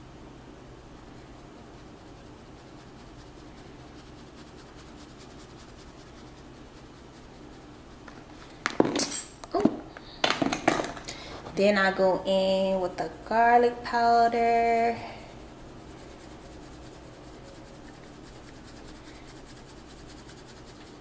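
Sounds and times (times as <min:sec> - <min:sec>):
room hum: 0:00.0 - 0:21.0.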